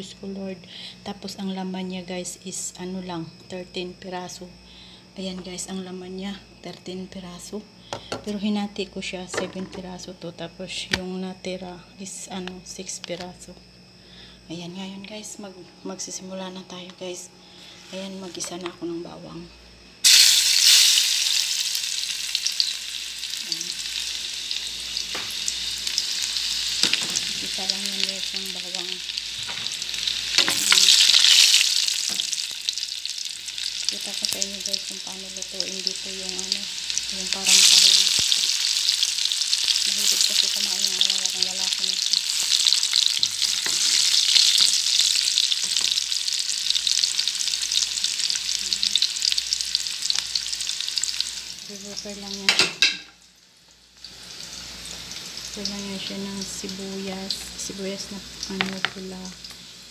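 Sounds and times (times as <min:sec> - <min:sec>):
oil crackling and popping: 0:20.0 - 0:24.3, 0:24.9 - 0:51.6
garlic sizzling in oil: 0:20.0 - 0:59.9.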